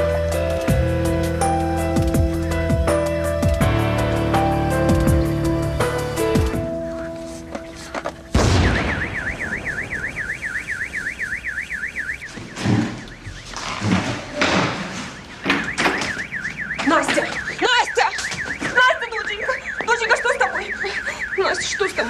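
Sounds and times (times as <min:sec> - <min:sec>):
thuds and bangs: 0:08.3 - 0:10.3, 0:12.2 - 0:17.6
loud explosive blast: 0:08.3 - 0:11.0
warbling electronic alarm: 0:08.3 - 0:14.0, 0:14.9 - 0:22.0.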